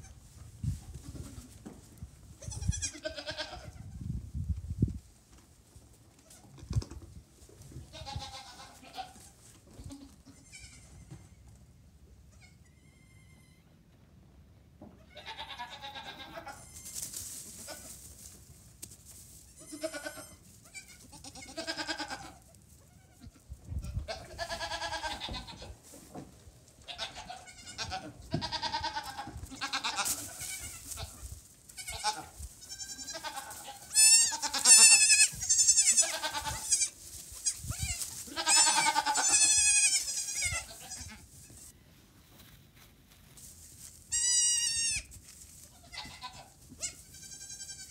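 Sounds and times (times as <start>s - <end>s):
goat kids bleating: 2.4s - 4.0s, 7.9s - 11.4s, 12.2s - 13.7s, 15.0s - 18.0s, 19.5s - 25.8s, 26.8s - 41.7s, 44.1s - 47.9s.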